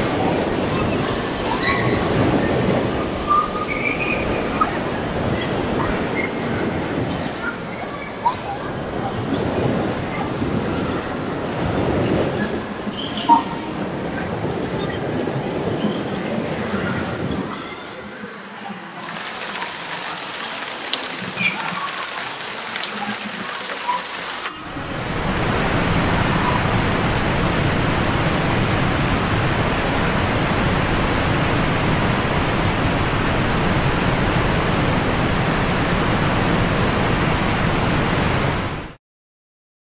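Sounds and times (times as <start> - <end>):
rush of water: 0.0 - 17.9, 18.9 - 39.0
echoing pool noise: 0.0 - 38.5
swimmer splashing in pool: 19.0 - 24.6.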